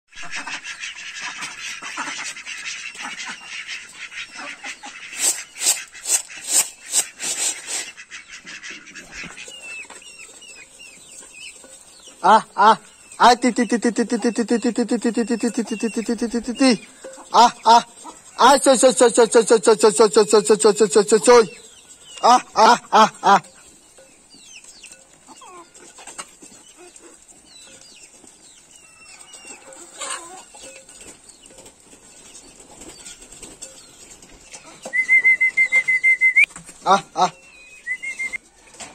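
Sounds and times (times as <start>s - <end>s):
ducks quacking: 0.1s - 9.8s, 12.1s - 23.5s
chick peeping: 0.1s - 38.7s
high chirps: 9.4s - 23.4s.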